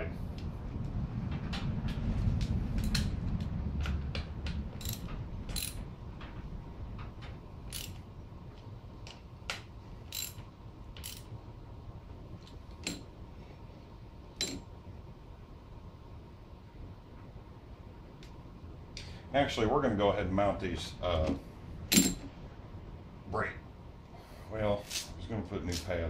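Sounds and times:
low rumble: 0:00.0 - 0:08.9
ratchet wrench clicking: 0:04.8 - 0:05.8, 0:07.7 - 0:08.0, 0:10.1 - 0:10.4, 0:11.0 - 0:11.3.

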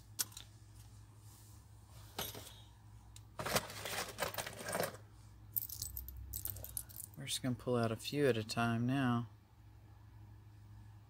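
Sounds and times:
metal pins clinking and rattling: 0:00.0 - 0:00.5, 0:03.4 - 0:07.2.

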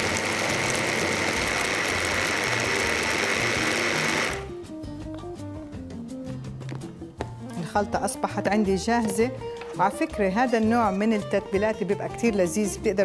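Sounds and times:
hand blender whining: 0:00.0 - 0:04.5
background music: 0:00.0 - 0:13.0.

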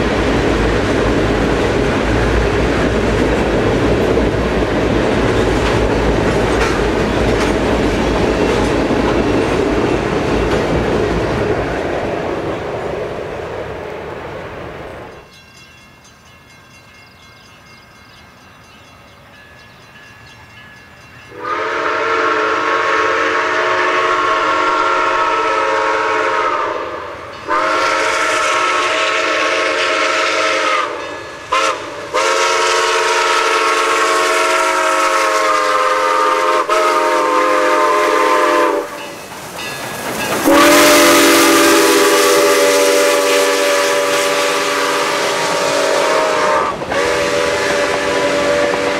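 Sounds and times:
steam locomotive whistle blasts: 0:21.3 - 0:39.2, 0:40.4 - 0:48.9
steam hissing: 0:21.3 - 0:48.9.

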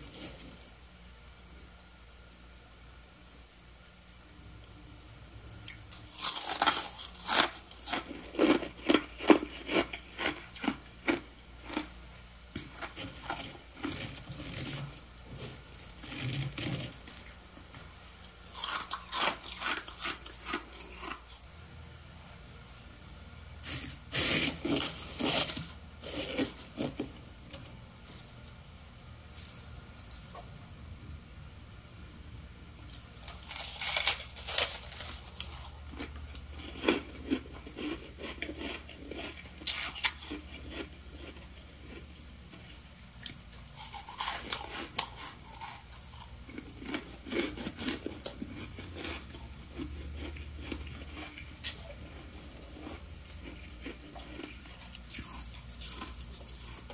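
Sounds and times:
crisp crunching of frost: 0:33.2 - 0:35.8.

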